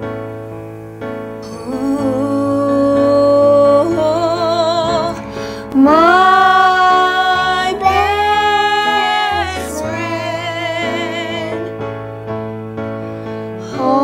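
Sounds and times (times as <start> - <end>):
instrumental accompaniment: 0.0 - 14.0
woman singing worship song: 1.4 - 11.7, 13.6 - 14.0.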